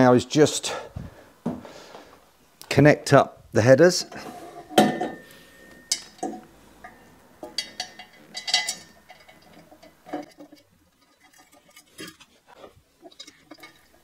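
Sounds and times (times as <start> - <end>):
metal pipes clinking and tapping: 4.1 - 14.0.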